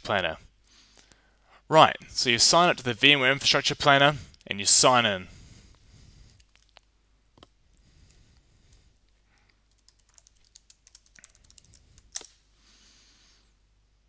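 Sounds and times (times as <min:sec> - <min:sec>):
computer keyboard typing: 0:09.7 - 0:12.3.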